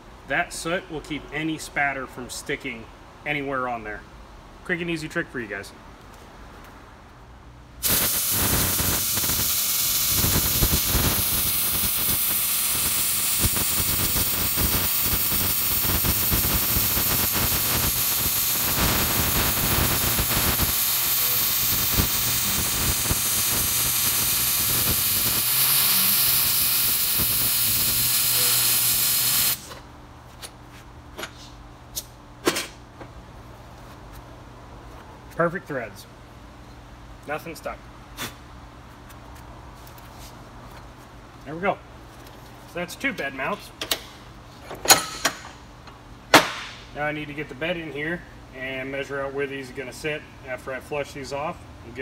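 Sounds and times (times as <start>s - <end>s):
welding arc crackling and hissing: 7.8s - 29.8s.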